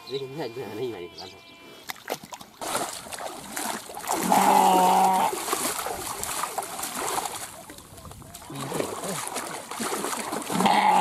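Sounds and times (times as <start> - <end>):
water splashing: 1.8 - 11.0
sheep bleating: 4.2 - 5.4, 10.5 - 11.0.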